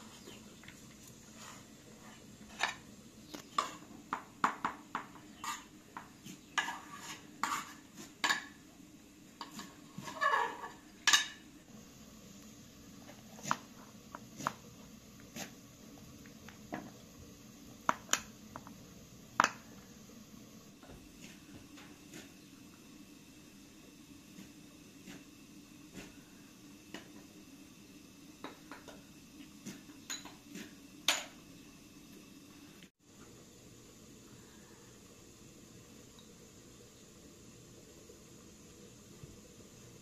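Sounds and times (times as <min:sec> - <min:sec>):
utensils clinking against dishes: 0:30.0 - 0:30.4.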